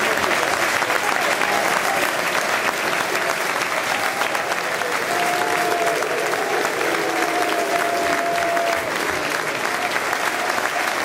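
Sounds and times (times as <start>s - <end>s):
crowd applauding: 0.0s - 11.0s
crowd voices: 0.0s - 11.0s.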